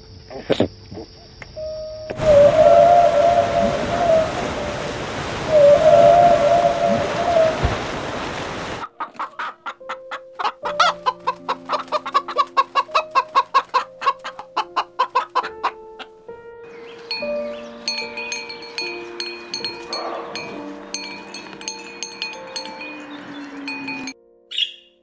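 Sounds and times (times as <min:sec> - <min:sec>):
light background music: 0:00.1 - 0:07.6, 0:08.9 - 0:24.9
whale call: 0:02.2 - 0:08.8, 0:22.6 - 0:24.2
rushing water: 0:02.2 - 0:08.9, 0:16.7 - 0:24.2
hens clucking rapidly: 0:08.6 - 0:16.1.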